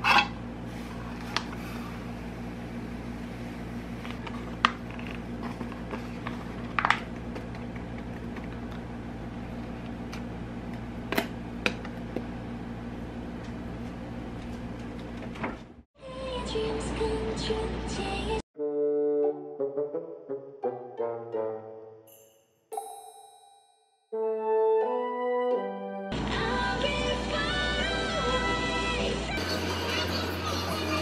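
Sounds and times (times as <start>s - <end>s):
steady low hum: 0.0s - 15.5s.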